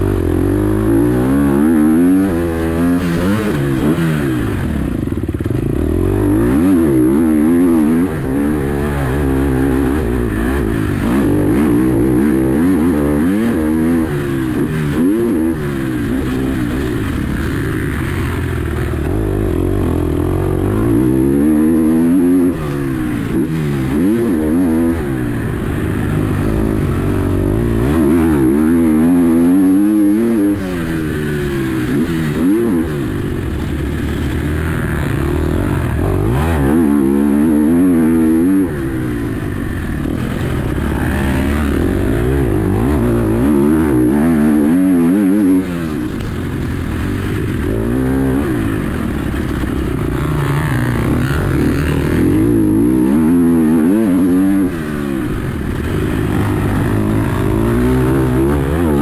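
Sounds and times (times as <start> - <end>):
motocross engine revving: 0.0 - 59.0.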